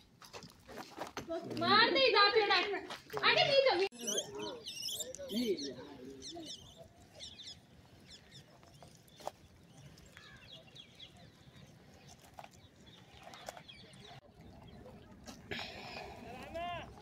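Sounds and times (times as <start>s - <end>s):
small birds chirping: 3.9s - 15.3s.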